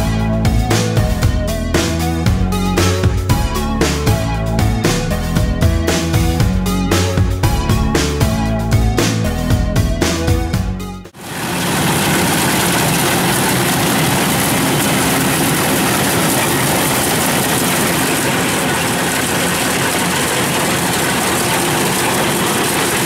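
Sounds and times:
combine harvester running: 0:11.1 - 0:23.0.

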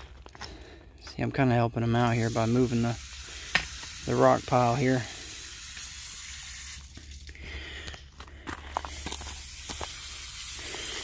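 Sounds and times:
steady hiss: 0:01.8 - 0:07.8, 0:08.8 - 0:11.0.

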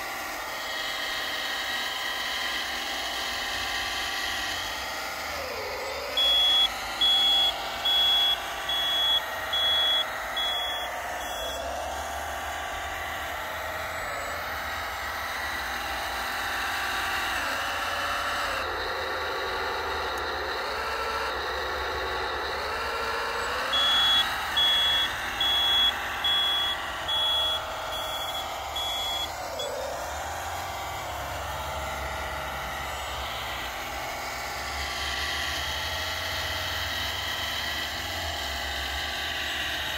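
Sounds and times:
whine of hydraulic pump and motors: 0:00.0 - 0:39.9
high reversing beeps: 0:04.4 - 0:15.6, 0:21.2 - 0:33.8.

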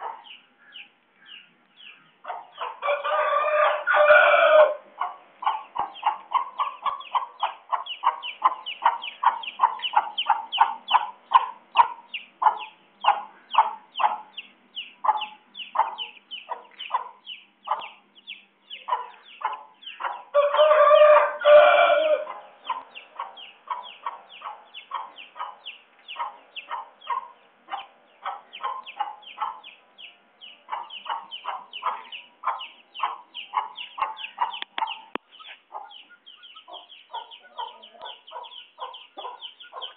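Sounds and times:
rooster clucking: 0:02.2 - 0:14.4, 0:18.7 - 0:29.7, 0:30.6 - 0:39.9
rooster crowing: 0:02.8 - 0:04.8, 0:20.3 - 0:22.3.

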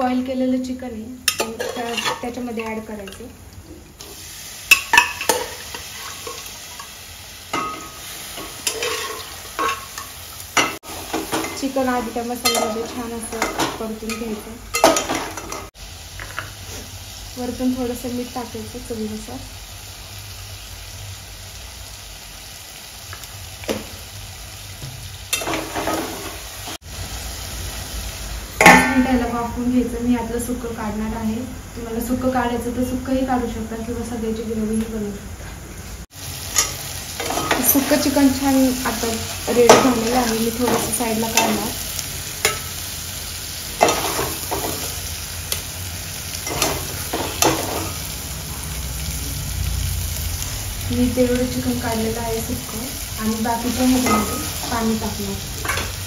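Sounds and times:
chicken sizzling in a pot: 0:00.9 - 0:35.1, 0:35.8 - 0:56.0
spoon scraping a pot: 0:01.3 - 0:02.8, 0:07.6 - 0:10.7
ladle scraping metal pot: 0:08.6 - 0:10.0.

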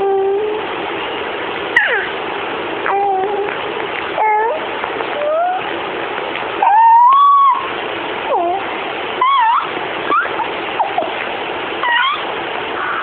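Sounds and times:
steady hiss: 0:00.0 - 0:13.0
baby squealing: 0:01.8 - 0:02.2, 0:04.2 - 0:05.7, 0:06.6 - 0:07.7, 0:08.3 - 0:11.2, 0:11.8 - 0:13.0.

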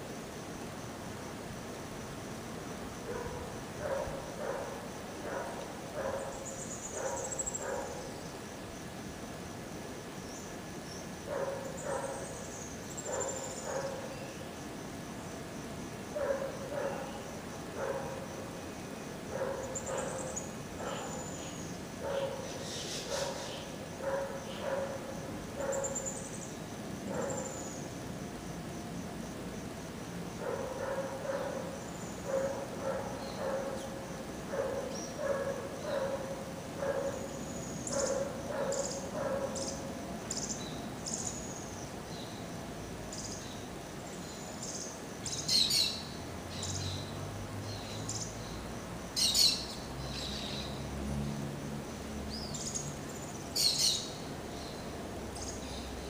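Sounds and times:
high insect trill: 0:00.0 - 0:56.0
dog barking: 0:03.1 - 0:06.4, 0:07.0 - 0:08.0, 0:11.3 - 0:12.2, 0:13.1 - 0:14.1, 0:16.2 - 0:17.2, 0:17.8 - 0:18.3, 0:19.3 - 0:21.2, 0:22.0 - 0:26.0, 0:27.1 - 0:27.5, 0:30.4 - 0:37.3, 0:37.9 - 0:39.8.

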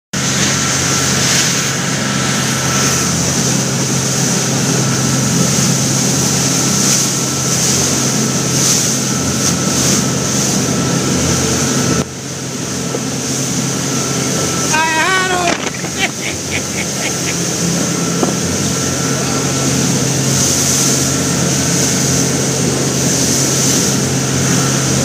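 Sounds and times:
motorboat engine drone: 0:00.2 - 0:25.0
rush of wake and spray: 0:00.2 - 0:25.0
wind buffeting microphone: 0:15.3 - 0:19.3.

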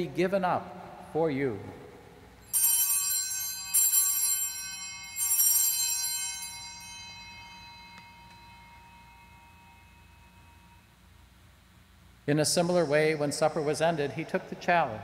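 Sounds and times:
altar bells ringing: 0:02.4 - 0:11.1.

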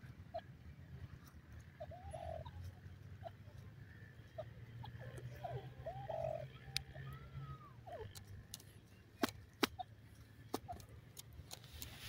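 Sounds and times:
faint bird chirps: 0:01.6 - 0:09.2.

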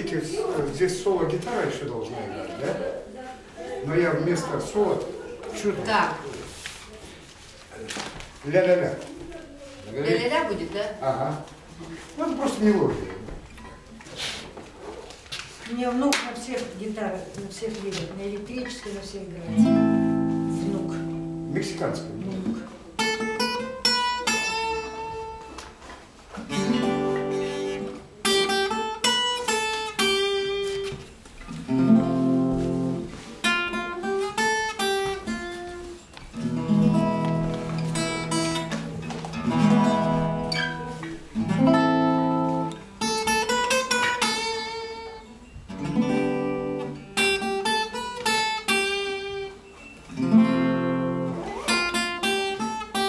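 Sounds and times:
acoustic guitar playing: 0:00.0 - 0:06.6, 0:17.7 - 0:53.0.

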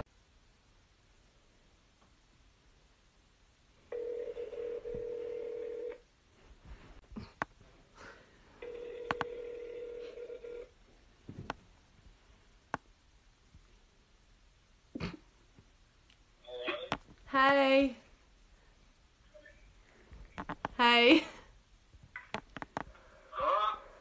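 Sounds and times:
phone ringback tone: 0:03.9 - 0:06.0, 0:08.6 - 0:10.7.

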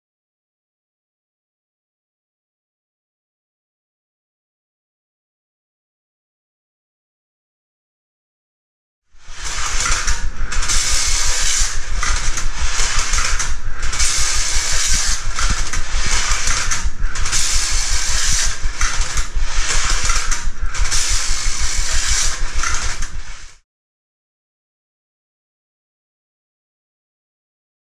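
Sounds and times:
clockwork mechanism whirring: 0:09.2 - 0:23.6
tin toy cars rattling on track: 0:09.3 - 0:23.1.

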